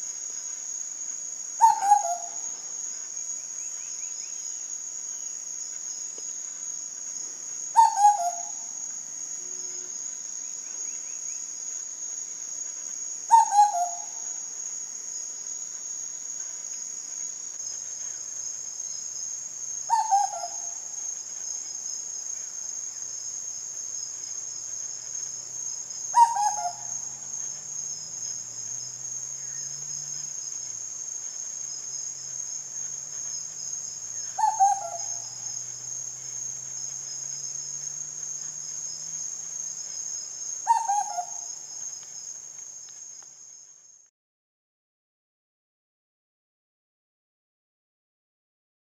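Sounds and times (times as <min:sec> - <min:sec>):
high-pitched insect drone: 0:17.7 - 0:42.4
bird call with falling notes: 0:26.1 - 0:26.9.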